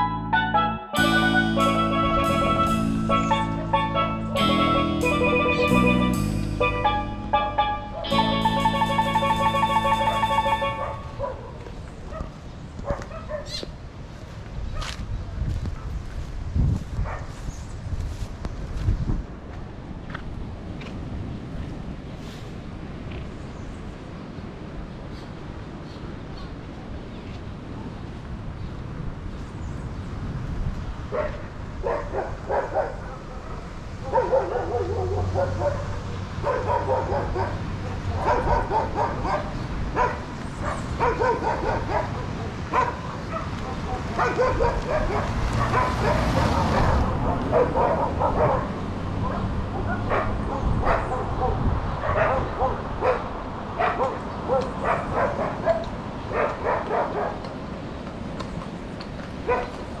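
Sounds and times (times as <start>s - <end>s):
dog barking and yipping: 10.6s - 13.6s, 31.1s - 57.4s, 59.4s - 59.8s
horse hooves clopping on pavement: 54.6s - 60.0s.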